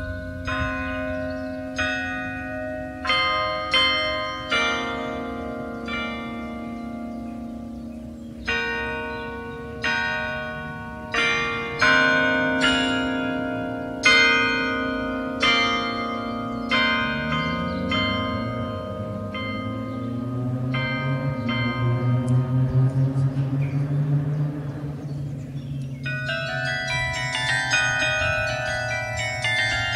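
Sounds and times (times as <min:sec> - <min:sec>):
carillon bells playing melody: 0:00.0 - 0:29.9
low hum: 0:17.6 - 0:27.1.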